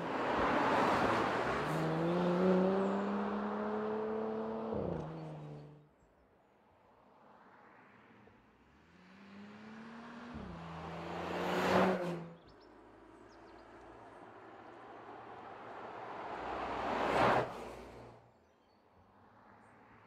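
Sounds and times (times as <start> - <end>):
car driving past: 0.0 - 5.8, 8.9 - 12.5.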